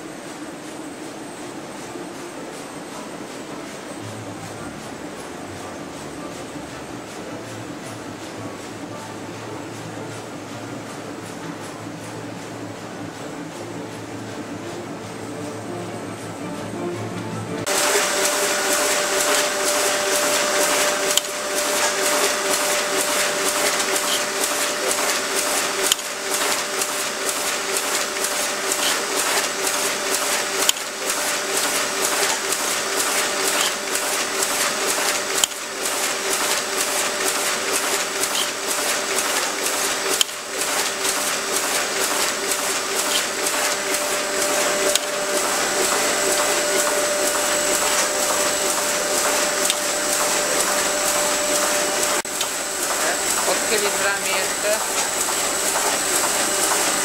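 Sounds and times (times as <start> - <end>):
printing machine clatter: 0.0 - 57.0
steady machine hum: 0.0 - 57.0
sharp machine click: 17.8 - 30.9, 31.6 - 53.5.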